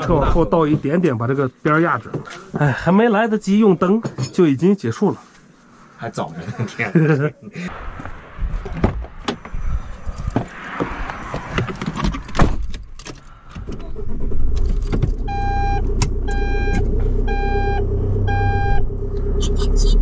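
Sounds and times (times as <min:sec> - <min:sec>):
engine rumbling: 0:07.7 - 0:20.0
keys jangling: 0:14.6 - 0:15.3
reversing alarm beeping: 0:15.2 - 0:19.6.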